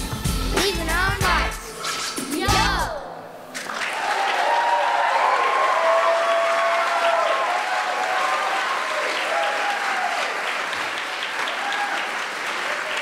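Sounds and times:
audience applauding: 3.6s - 13.0s.

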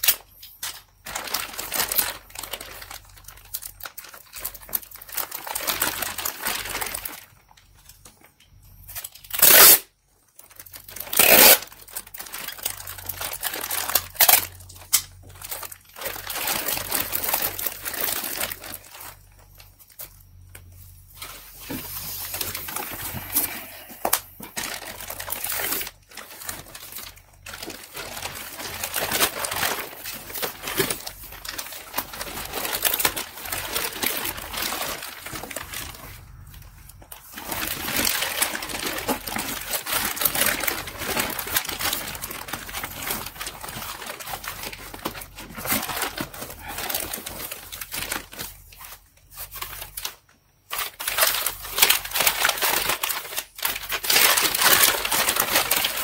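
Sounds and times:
plastic bag crinkling: 0.0s - 56.0s
cardboard shifting: 15.4s - 50.0s.

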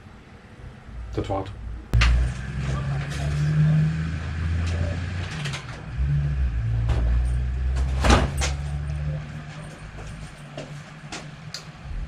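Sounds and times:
low mechanical drone: 0.0s - 12.0s.

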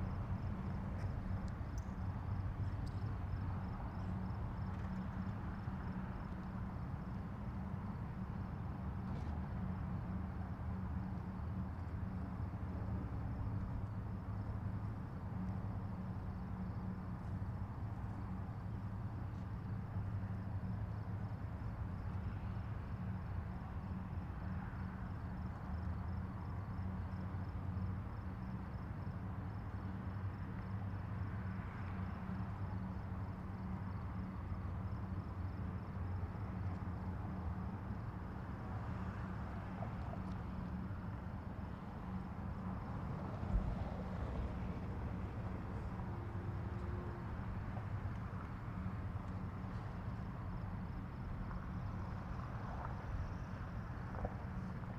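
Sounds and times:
tugboat diesel engines droning: 32.5s - 52.3s.

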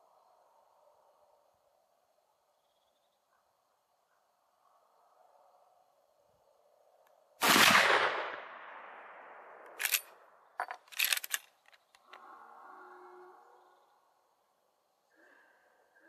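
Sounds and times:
rifle shot with echo: 7.4s - 9.6s
rifle lever metallic clicks: 9.8s - 12.1s.

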